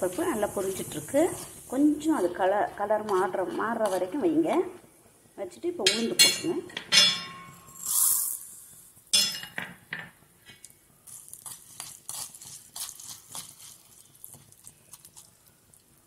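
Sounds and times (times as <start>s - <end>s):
faint frying sizzle: 0.0s - 5.9s, 10.5s - 16.0s.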